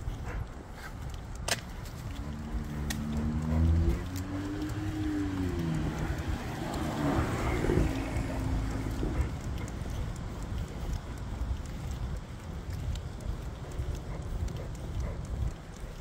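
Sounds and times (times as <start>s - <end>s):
car engine passing: 2.1s - 9.6s.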